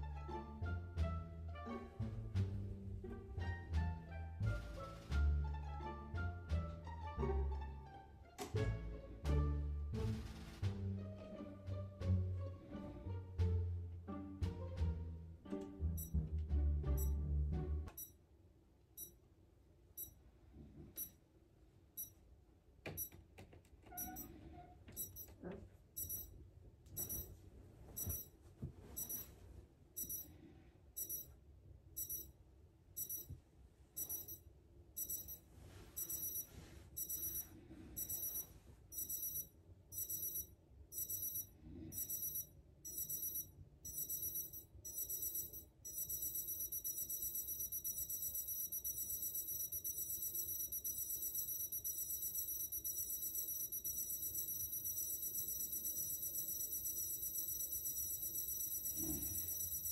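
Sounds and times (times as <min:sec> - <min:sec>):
alarm clocks beeping: 0:15.9 - 0:16.2, 0:17.0 - 0:17.2, 0:19.0 - 0:19.2, 0:20.0 - 0:20.2, 0:21.0 - 0:21.2, 0:22.0 - 0:22.2, 0:22.9 - 0:23.1, 0:24.0 - 0:24.3, 0:25.0 - 0:25.4, 0:26.0 - 0:26.3, 0:27.0 - 0:27.3, 0:28.0 - 0:28.3, 0:29.0 - 0:29.3, 0:30.0 - 0:30.3, 0:31.0 - 0:31.3, 0:32.0 - 0:32.4, 0:33.0 - 0:33.3, 0:34.0 - 0:59.9.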